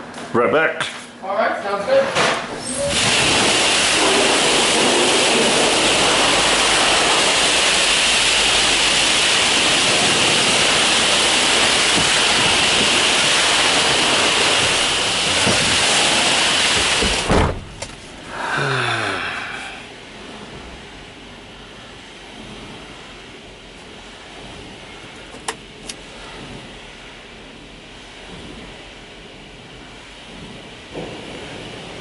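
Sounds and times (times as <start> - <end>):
high-pressure water spray: 2.6 - 19.6
cab door shutting: 14.5 - 18.1.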